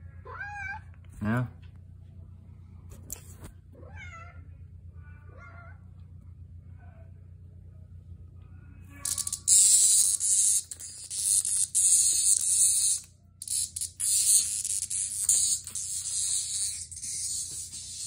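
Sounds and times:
cicada buzzing: 9.0s - 18.0s.

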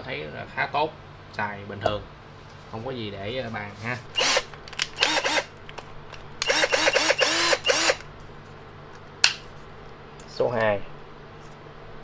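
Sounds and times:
cordless drill whirring: 4.2s - 5.5s, 6.4s - 8.1s.

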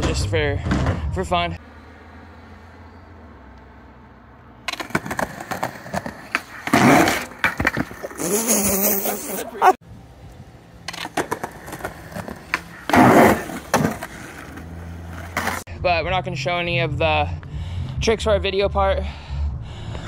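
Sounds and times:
skateboard wheels rolling on concrete: 4.4s - 15.7s
skateboard clacking: 4.7s - 8.2s, 10.8s - 15.6s.

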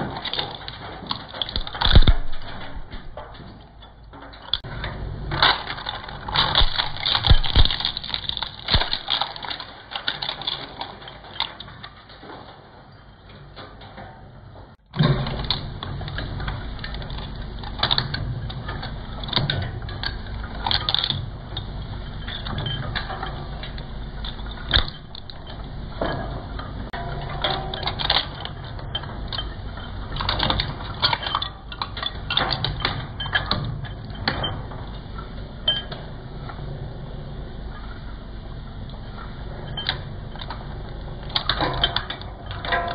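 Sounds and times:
shredder grinding and crunching: 5.3s - 11.6s, 24.6s - 26.1s.

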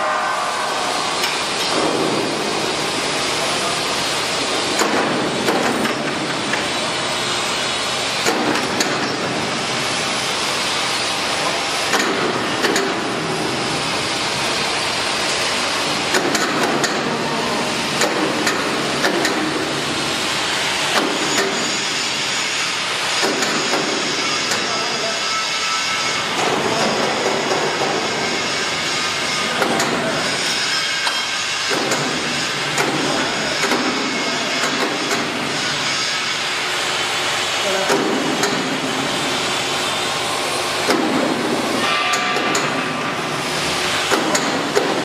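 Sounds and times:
machinery running: 0.0s - 45.0s
knocks and clanks: 1.2s - 2.8s, 4.6s - 6.8s, 8.2s - 9.4s, 11.4s - 13.2s, 16.1s - 17.2s, 17.9s - 19.8s, 20.9s - 21.9s, 23.2s - 24.8s, 26.1s - 28.5s, 29.2s - 35.9s, 37.8s - 39.1s, 40.8s - 43.2s, 44.0s - 45.0s.

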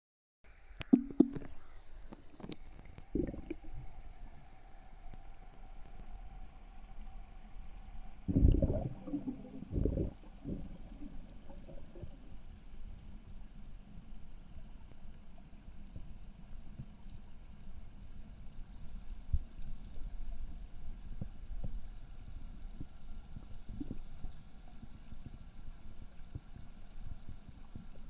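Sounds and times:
faint steady hum: 0.5s - 28.0s
muffled underwater water sloshing: 0.8s - 4.4s, 7.7s - 28.0s.

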